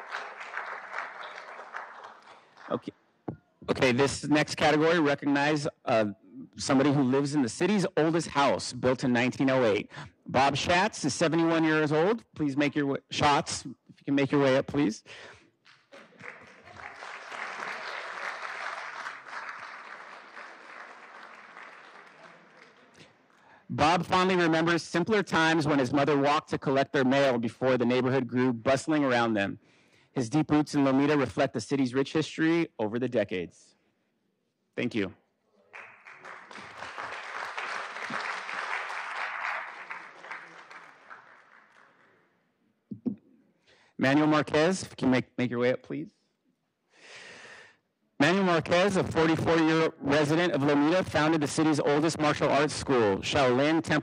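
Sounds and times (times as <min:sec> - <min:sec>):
audience applauding: 0:00.0 - 0:02.9, 0:15.7 - 0:23.2, 0:35.7 - 0:42.2.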